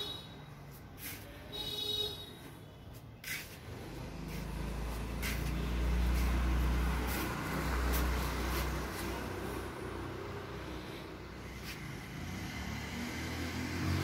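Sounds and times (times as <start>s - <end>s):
vehicle engine passing by: 3.2s - 14.0s.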